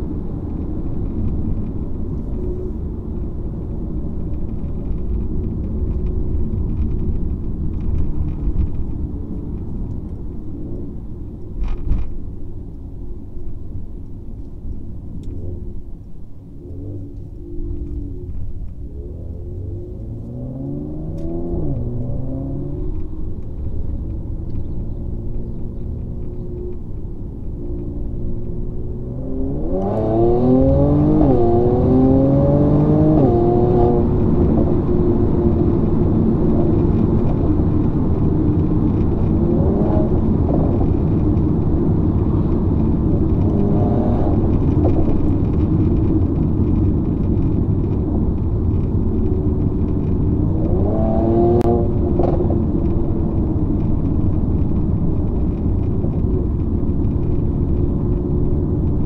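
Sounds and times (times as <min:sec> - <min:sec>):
car engine accelerating: 0:14.4 - 0:59.0.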